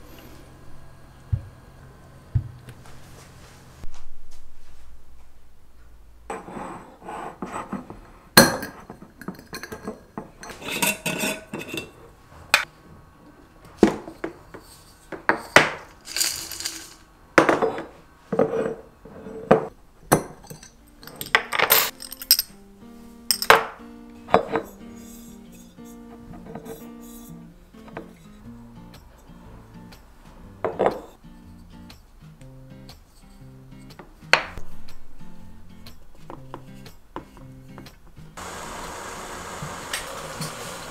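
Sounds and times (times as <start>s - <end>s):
glass jars clinking: 8.4s - 12.0s, 15.3s - 18.8s, 19.4s - 22.6s, 23.3s - 24.8s, 30.6s - 31.2s
soft background music: 19.7s - 38.4s.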